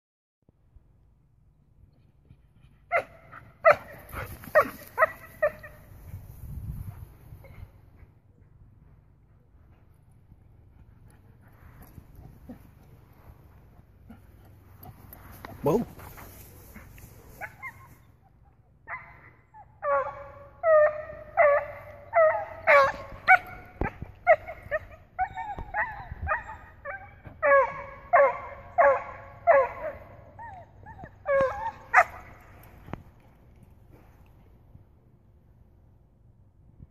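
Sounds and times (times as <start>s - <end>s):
dog barking: 2.9s - 5.8s, 18.9s - 30.2s, 31.3s - 32.4s.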